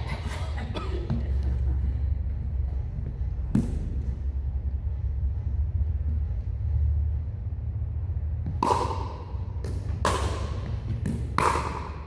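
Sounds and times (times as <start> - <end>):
steady low hum: 0.0 - 12.0
paddles hitting plastic ball: 8.5 - 12.0.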